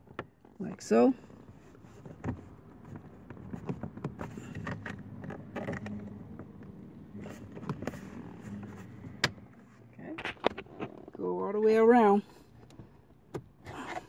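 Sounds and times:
plastic panel clicking and scraping: 1.5 - 9.6.

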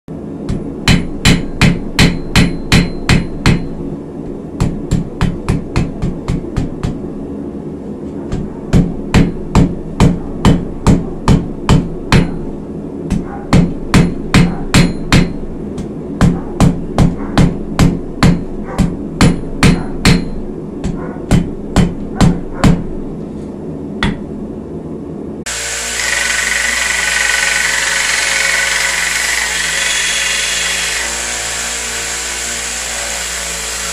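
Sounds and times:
hammer striking steel on anvil: 0.5 - 3.8, 8.3 - 22.8
belt sander running: 25.5 - 33.9.

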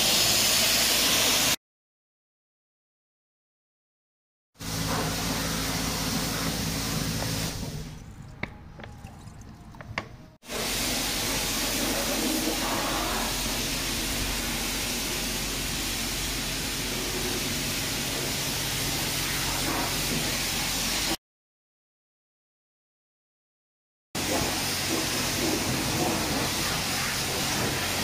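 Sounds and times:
water rushing into bucket: 6.0 - 14.8.

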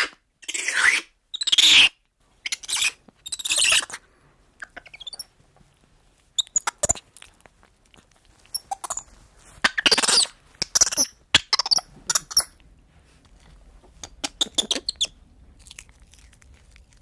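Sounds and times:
spider monkey screeching: 0.0 - 4.0, 4.8 - 5.3, 8.5 - 12.6, 14.2 - 15.2
monkey chirps and clicks: 0.4 - 4.0, 4.6 - 5.3, 6.4 - 12.6, 14.0 - 17.0.

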